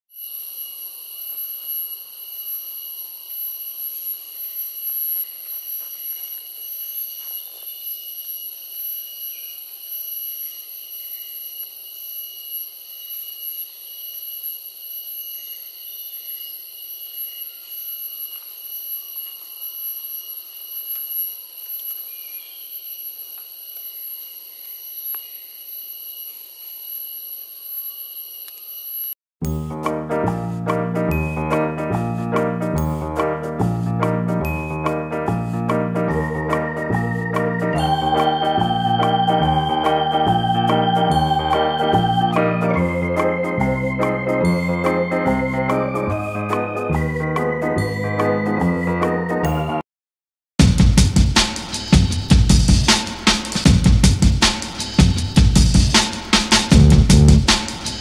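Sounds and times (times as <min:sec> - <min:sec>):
insect chorus drone: 0:00.1 - 0:29.2, 0:36.1 - 0:46.2.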